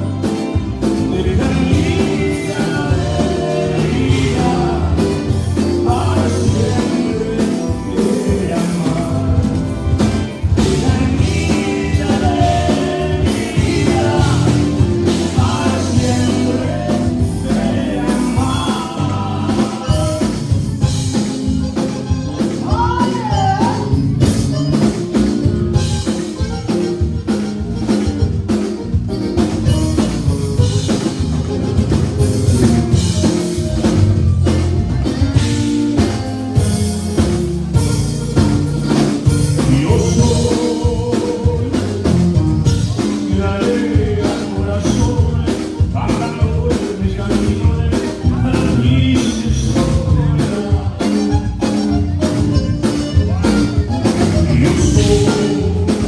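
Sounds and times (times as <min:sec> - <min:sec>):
bass guitar: 0:00.0 - 0:56.0
button accordion: 0:00.0 - 0:56.0
conjunto band playing: 0:00.0 - 0:56.0
drum kit beat: 0:00.0 - 0:56.0
electric guitars: 0:00.0 - 0:56.0
person singing through pa: 0:00.8 - 0:21.3, 0:22.3 - 0:24.8, 0:39.2 - 0:52.6, 0:53.2 - 0:56.0.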